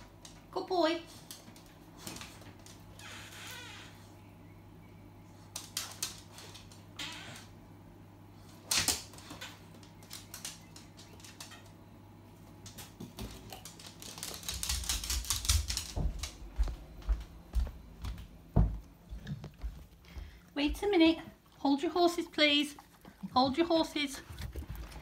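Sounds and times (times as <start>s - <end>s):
dog claws tapping on tiles: 5.5s - 6.8s, 8.7s - 11.8s, 12.6s - 16.8s
clicks and rustles: 12.7s - 16.4s.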